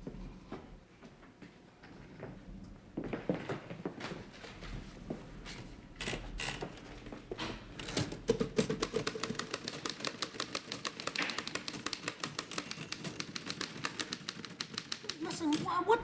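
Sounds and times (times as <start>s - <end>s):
typewriter keys clacking: 8.3s - 15.8s.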